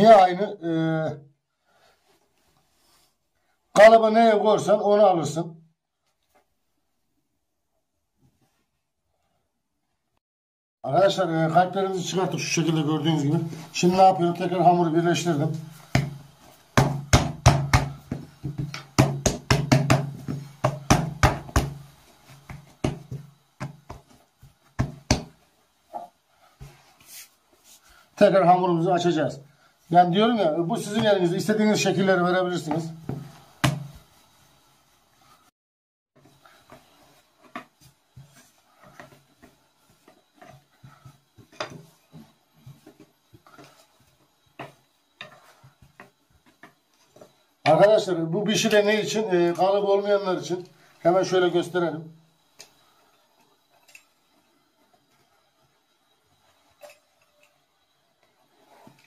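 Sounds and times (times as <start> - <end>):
rolling pin rolling dough: 11.7 - 29.0, 29.8 - 34.4, 36.2 - 51.8
hands slapping dough: 15.6 - 27.2, 32.7 - 34.1
rolling pin knocking on counter: 16.8 - 21.8.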